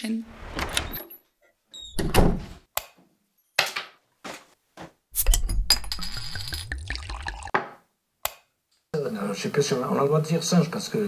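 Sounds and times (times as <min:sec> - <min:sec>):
small objects clicking and clinking: 0:05.2 - 0:06.8.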